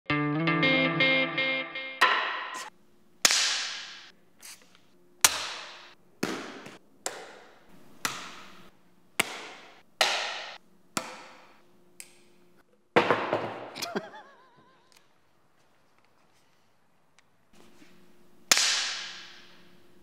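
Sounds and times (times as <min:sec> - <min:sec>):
sharp slaps and knocks: 0:02.0 - 0:04.1, 0:05.2 - 0:12.3, 0:18.5 - 0:19.6.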